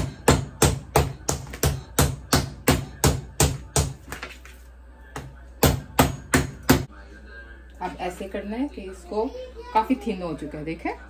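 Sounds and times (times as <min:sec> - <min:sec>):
meat mallet pounding meat: 0:00.0 - 0:04.0, 0:05.2 - 0:06.9.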